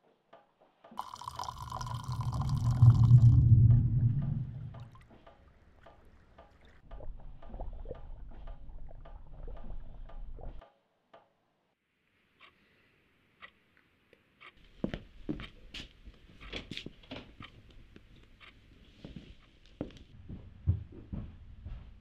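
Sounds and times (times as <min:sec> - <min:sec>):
low rumble: 0:01.8 - 0:05.0.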